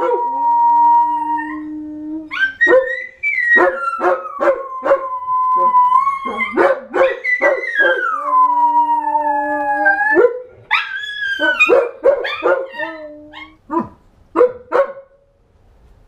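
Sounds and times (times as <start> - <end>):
dogs howling: 0.0 - 13.9
dog barks and yips: 2.3 - 5.0, 10.2 - 15.0.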